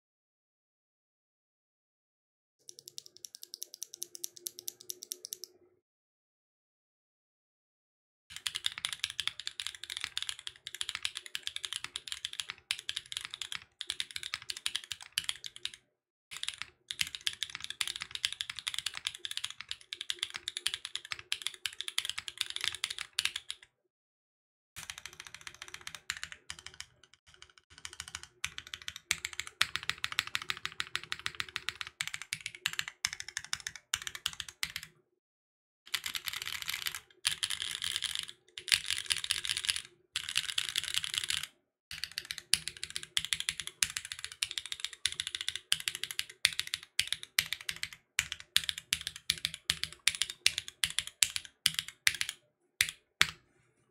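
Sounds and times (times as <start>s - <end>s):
mechanical keyboard key clacks: 2.7s - 5.5s.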